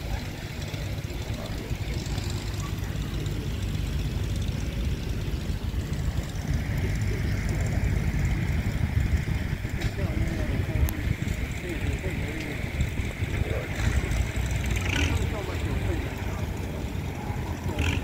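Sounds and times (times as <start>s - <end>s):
tractor engine rumbling: 0.0s - 18.0s.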